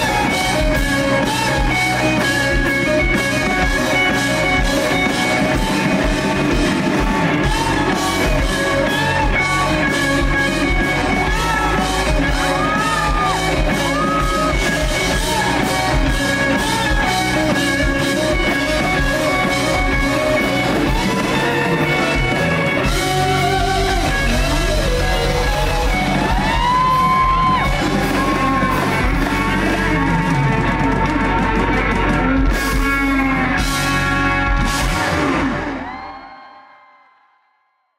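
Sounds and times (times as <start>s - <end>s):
drum kit: 0.0s - 36.2s
electric guitars with bending notes: 0.0s - 36.3s.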